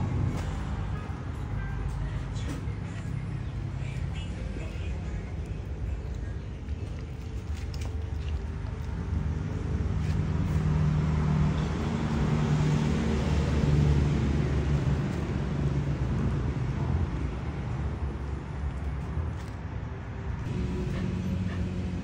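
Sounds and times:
vehicle engine humming: 0:00.0 - 0:22.0.

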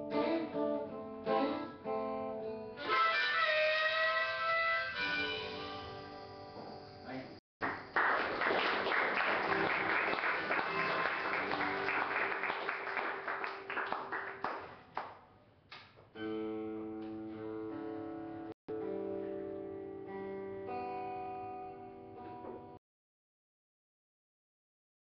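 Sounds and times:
audience applause: 0:07.6 - 0:15.1.

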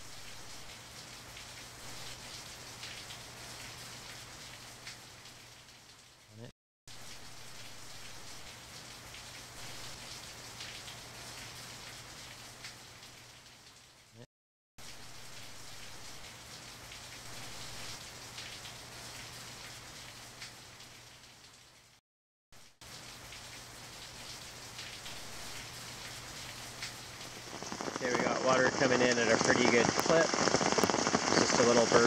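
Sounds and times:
rain falling on asphalt: 0:00.0 - 0:06.3, 0:06.9 - 0:14.2, 0:14.8 - 0:22.0, 0:22.6 - 0:32.0.

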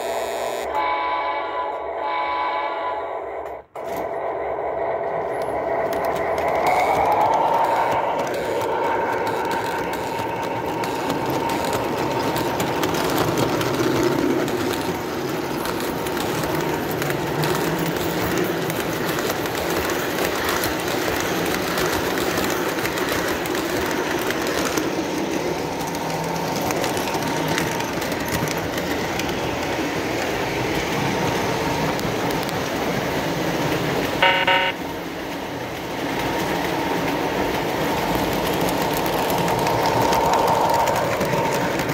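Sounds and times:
model train wheels clattering: 0:05.2 - 0:34.6, 0:36.1 - 0:41.9
short pitched tone: 0:34.2 - 0:34.8.

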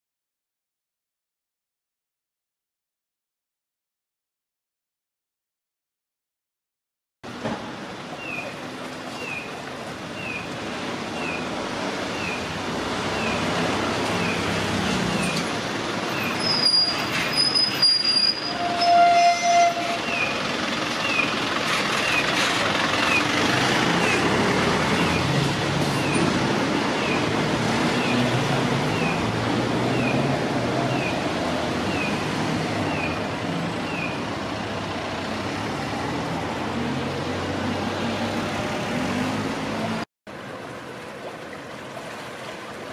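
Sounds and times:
passing traffic: 0:07.2 - 0:42.9
brief squeal: 0:16.3 - 0:20.3
pedestrian signal bird chirps: 0:16.4 - 0:20.4
horn-like tone: 0:18.0 - 0:20.3.

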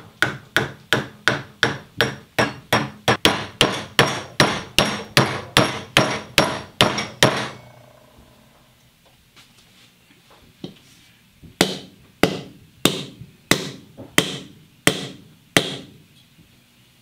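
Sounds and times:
axe striking concrete floor: 0:00.2 - 0:07.8, 0:11.6 - 0:16.0.

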